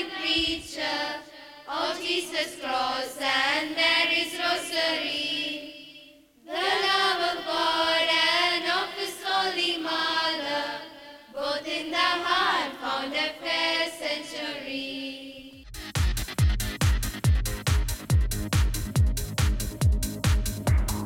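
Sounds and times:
choir singing a hymn: 0.0 - 15.6.

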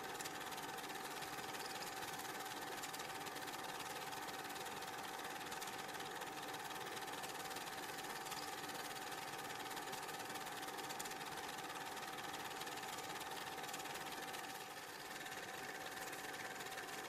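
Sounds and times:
constant high hum: 0.0 - 4.6, 7.5 - 9.0.

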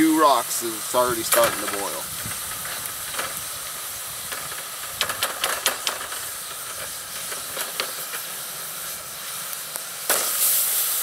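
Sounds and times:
hot rocks hissing in water: 0.0 - 11.0
sharp crackles and pops: 0.0 - 11.0.

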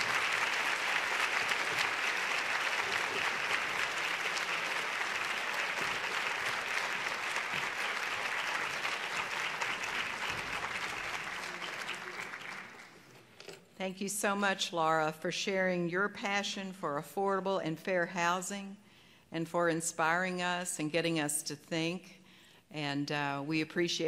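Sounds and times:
audience applauding: 0.0 - 13.1.

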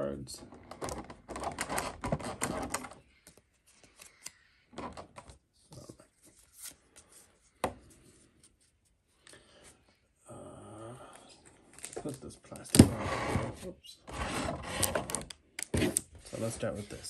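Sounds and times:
cards rustling and rubbing: 0.7 - 4.6, 5.2 - 9.0, 13.5 - 17.0.

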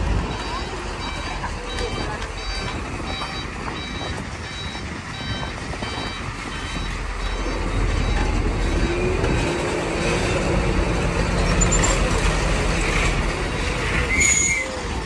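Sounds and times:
diesel engine rumble: 0.0 - 15.0
reverse alarm beeping: 0.2 - 9.0.

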